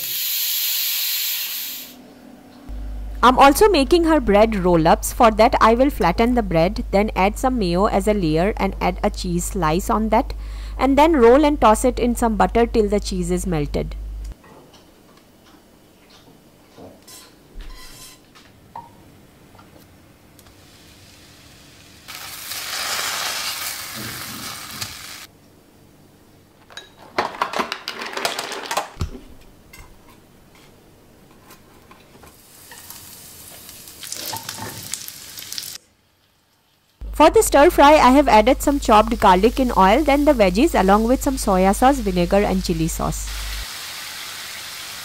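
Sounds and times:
garlic sizzling in oil: 0.0 - 2.0, 20.5 - 25.3, 32.4 - 37.0, 37.8 - 45.0
butter sizzling in frying pan: 20.6 - 25.3, 32.4 - 36.9, 38.7 - 45.0.

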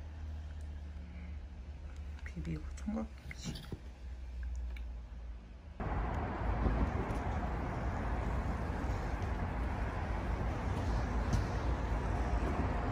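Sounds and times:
distant traffic rumble: 4.4 - 12.9.

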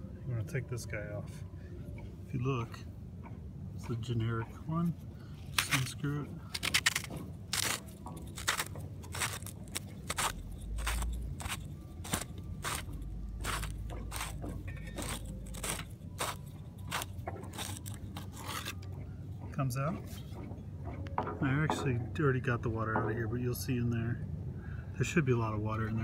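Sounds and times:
plastic cap scraping and clicking: 5.5 - 18.9.

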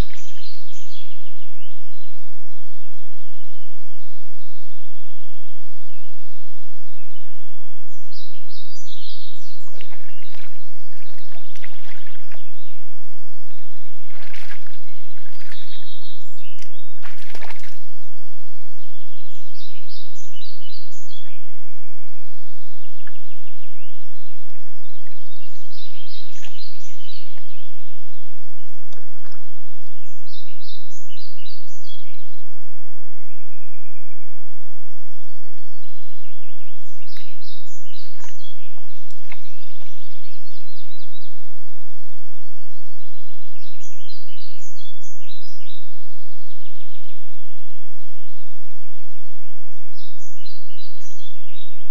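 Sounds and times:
songbirds chirping: 0.0 - 51.9
water sloshing and splashing: 9.6 - 18.0, 24.5 - 27.6, 28.7 - 30.0, 37.9 - 40.2.

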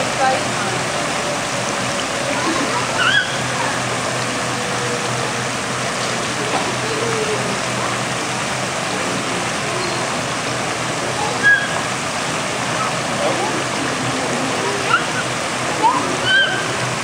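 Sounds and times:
fountain water splashing: 0.0 - 17.0.

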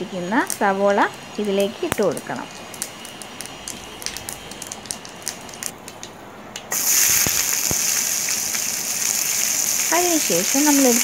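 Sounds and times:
onions sizzling in oil: 0.0 - 5.7, 6.7 - 11.0
seeds crackling in hot oil: 0.0 - 6.1, 6.7 - 11.0.

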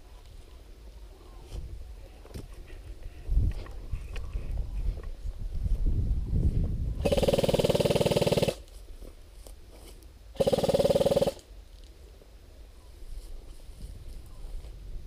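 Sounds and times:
airsoft rifle full-auto bursts: 7.0 - 8.7, 10.4 - 11.5.

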